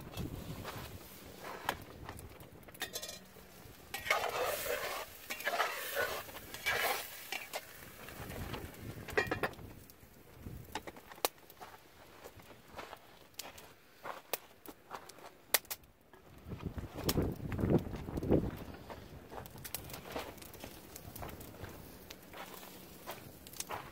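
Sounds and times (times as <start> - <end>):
metal pot lid clinking: 2.8 - 3.3
spatula scraping in a pot: 3.9 - 7.7.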